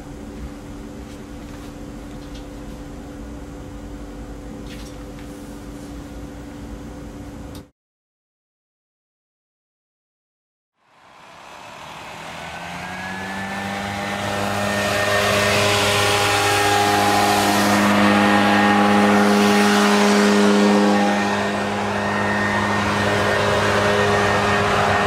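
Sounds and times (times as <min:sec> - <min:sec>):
low droning hum: 0:10.9 - 0:25.0.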